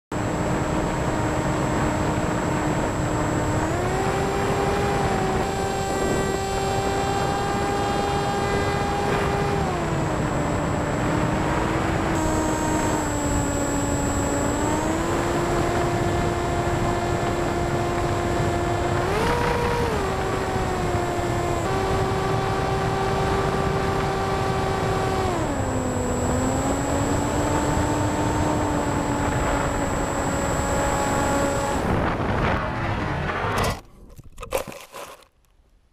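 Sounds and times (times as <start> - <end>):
electric motor and propeller hum: 0.1 - 35.4
wind rushing: 31.4 - 33.6.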